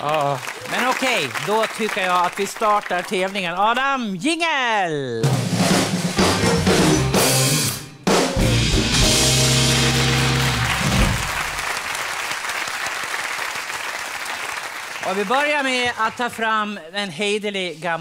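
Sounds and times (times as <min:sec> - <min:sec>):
audience applause: 0:00.0 - 0:03.4, 0:09.3 - 0:16.1
game show jingle with drums: 0:05.2 - 0:11.6.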